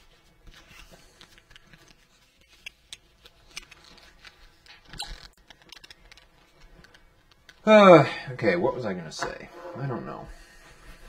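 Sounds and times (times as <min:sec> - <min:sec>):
rustling of handling things: 0:00.0 - 0:07.6.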